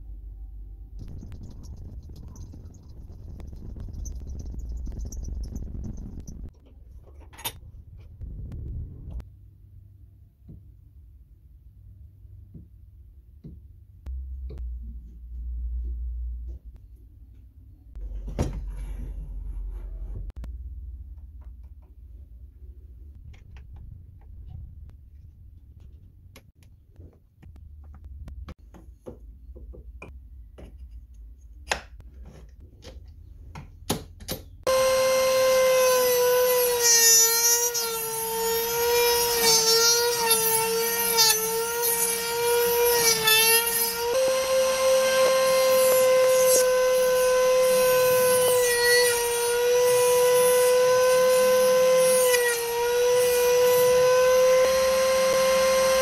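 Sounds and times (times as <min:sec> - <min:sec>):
router high whine: 0:34.7 - 0:56.0.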